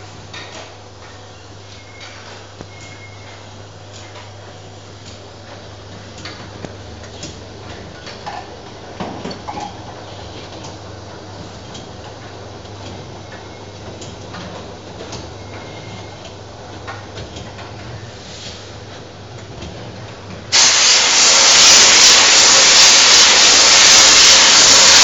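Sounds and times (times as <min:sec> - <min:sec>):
machine humming: 0:20.5 - 0:25.0.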